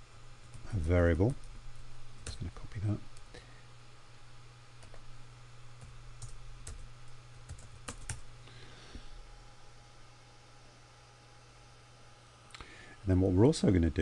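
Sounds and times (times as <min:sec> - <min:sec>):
steady low hum: 0:00.0 - 0:14.0
computer keyboard keystrokes: 0:07.5 - 0:08.2.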